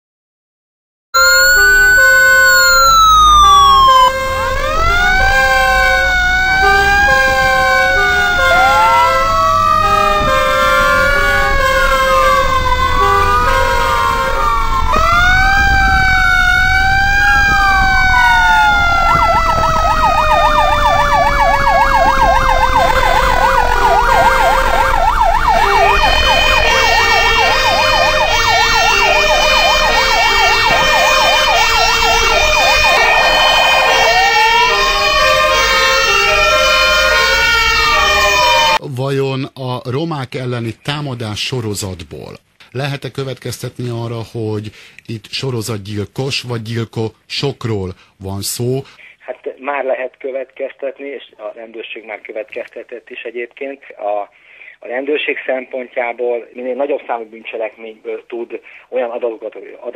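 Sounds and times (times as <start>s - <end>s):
sirens wailing: 1.2s - 38.8s
two-note hi-lo siren: 1.2s - 38.8s
warbling siren yelp: 1.2s - 38.8s.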